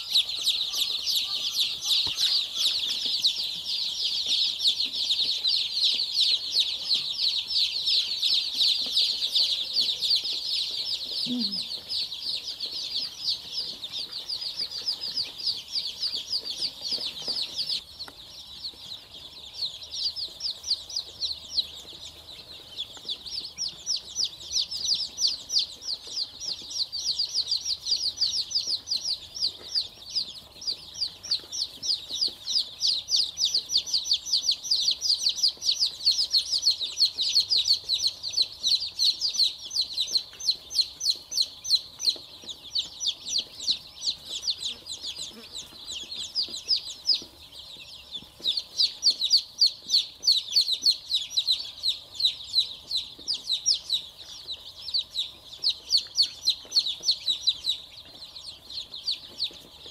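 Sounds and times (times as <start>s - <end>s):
chicks peeping: 0.0s - 59.9s.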